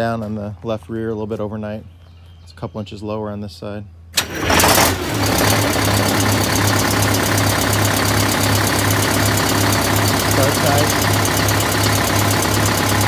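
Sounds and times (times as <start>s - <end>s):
diesel engine starting and idling: 4.1s - 13.0s.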